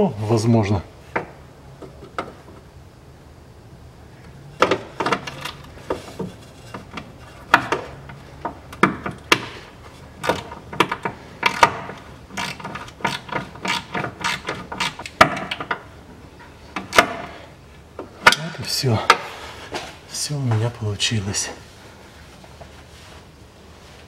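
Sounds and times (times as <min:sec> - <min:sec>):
screw clicking and scraping: 0:10.2 - 0:15.8.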